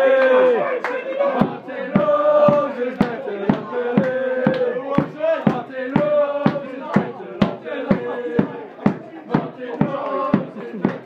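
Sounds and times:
football supporters chanting: 0.0s - 11.0s
steady beat: 1.3s - 11.0s.

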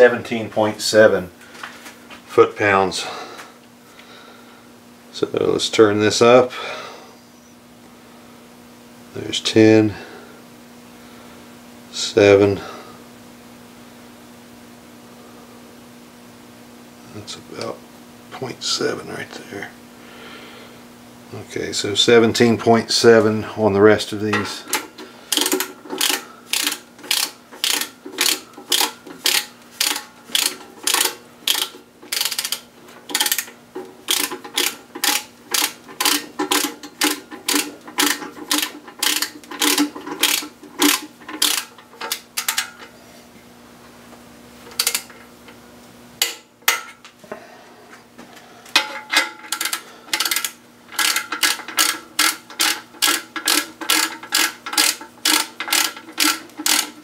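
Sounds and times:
ratchet wrench clicking: 24.7s - 33.5s, 34.1s - 42.7s, 44.8s - 45.0s, 49.5s - 57.0s.

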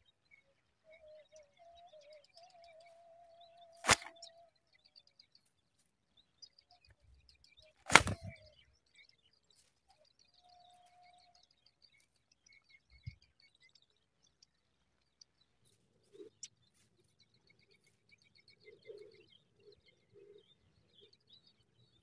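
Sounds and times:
faint high chirping: 0.0s - 22.0s
grass rustling: 3.7s - 4.3s, 7.8s - 8.5s.

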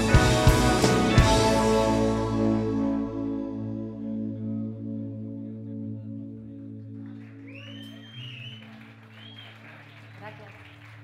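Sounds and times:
electric guitar and band chord: 0.0s - 7.0s.

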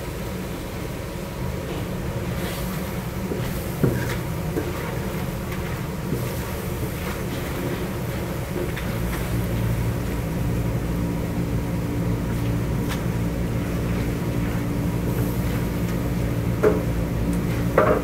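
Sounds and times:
meat stir-fried in steel pot: 0.5s - 18.0s
kitchen equipment humming: 1.5s - 18.0s
wooden paddle knocking pot: 17.7s - 18.0s.

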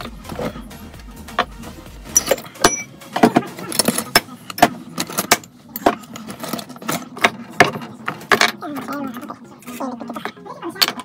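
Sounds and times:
metal tools clinking: 2.1s - 3.0s.

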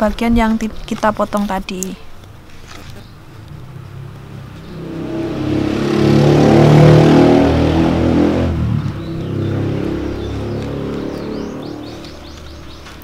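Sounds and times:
vehicle engine passing by: 3.1s - 13.0s.

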